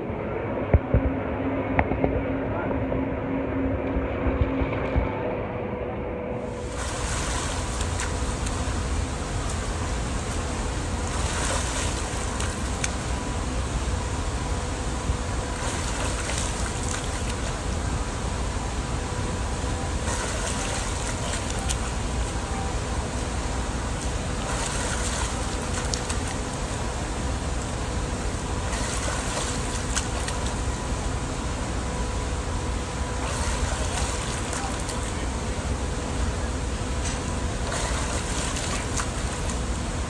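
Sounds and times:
low rumble: 0.0 - 29.2
faint hum: 0.0 - 40.0
swimmer splashing in pool: 6.5 - 13.2, 15.5 - 17.6, 20.0 - 22.0, 24.4 - 26.5, 28.7 - 30.6, 33.2 - 35.2, 37.6 - 39.6.

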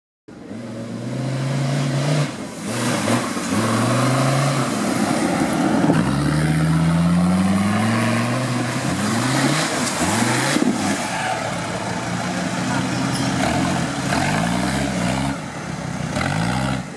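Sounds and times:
engine revving hard: 12.7 - 15.4, 16.1 - 16.9.

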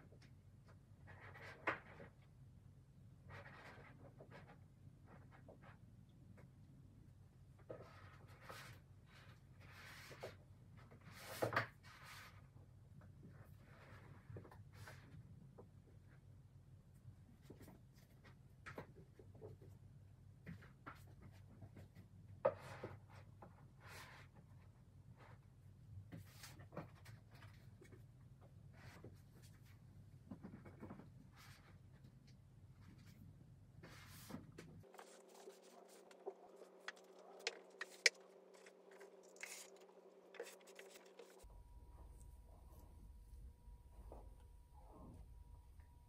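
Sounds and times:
scraping rustle: 33.8 - 41.4.

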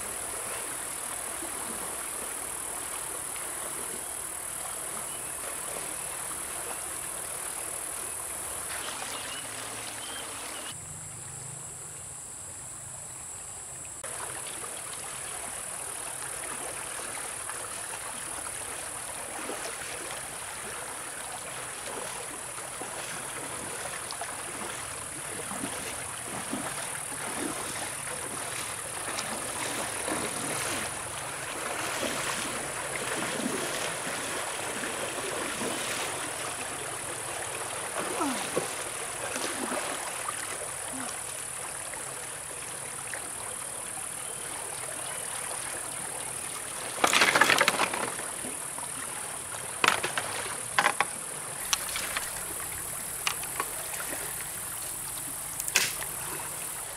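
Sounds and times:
stream running over rocks: 0.0 - 10.8, 14.0 - 56.9
splashing from wading: 14.0 - 42.6, 45.4 - 56.9.

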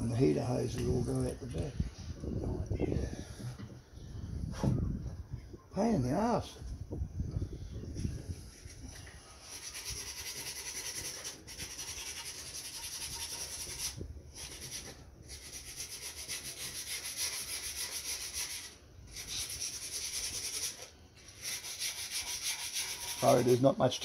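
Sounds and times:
scratchy rasping rubbing: 8.2 - 23.7.

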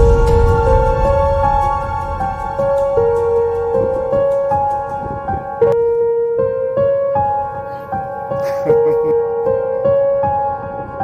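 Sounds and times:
slow new-age melody: 0.0 - 11.0.

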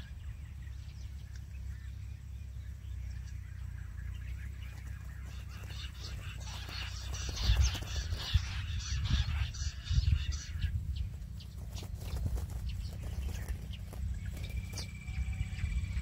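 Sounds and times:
quail calling: 3.1 - 16.0
wind rumble on microphone: 4.4 - 16.0.

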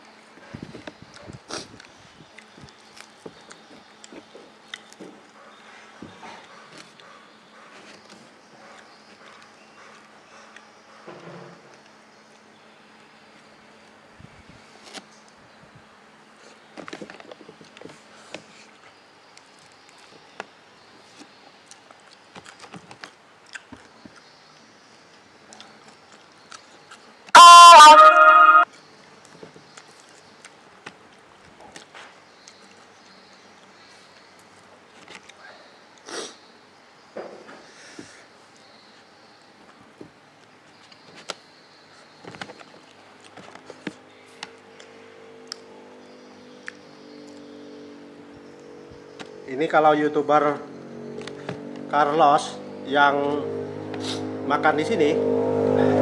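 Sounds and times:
person chewing: 23.4 - 23.9.

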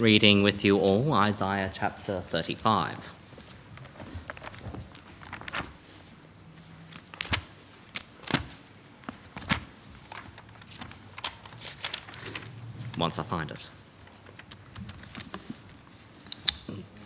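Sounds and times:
pages being leafed through: 3.4 - 13.3, 14.0 - 15.9.

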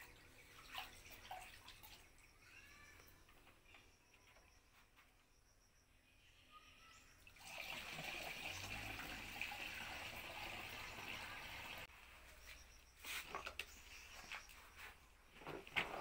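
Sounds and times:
water pouring into plastic tank: 7.3 - 11.9.

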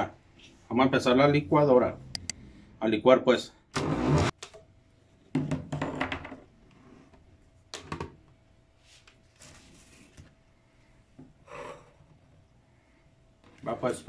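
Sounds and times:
blender jar loud burst: 3.7 - 4.3.

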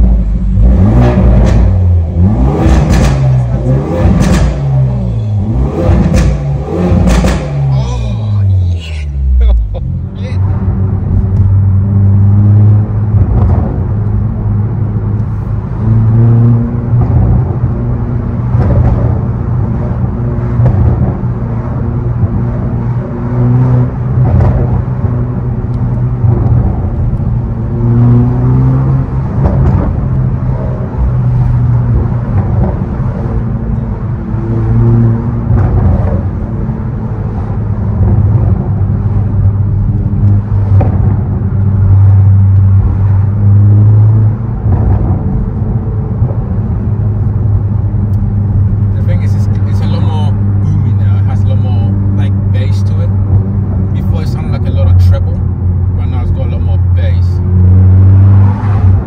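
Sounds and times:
car engine droning through exhaust: 0.0 - 59.0.

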